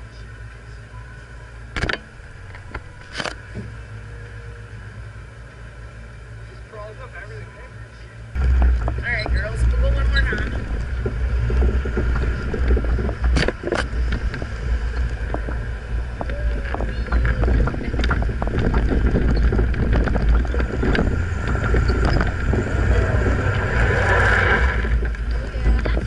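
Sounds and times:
vehicle engine rumbling: 0.0s - 26.0s
body and suspension rattling: 8.3s - 26.0s.

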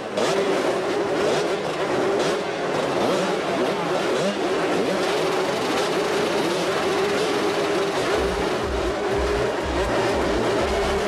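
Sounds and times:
motorbike engines droning: 0.0s - 11.0s
music with deep pulsing bass: 8.0s - 11.0s.

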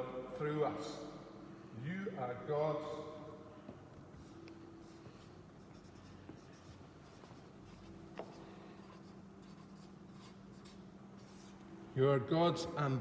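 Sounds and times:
marker pen writing on paper: 4.8s - 11.6s.

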